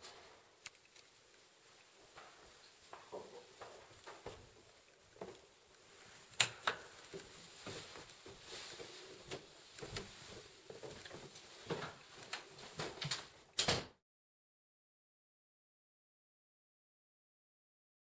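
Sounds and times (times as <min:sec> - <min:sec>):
footsteps on stairs and wood floor: 0:01.2 - 0:13.4.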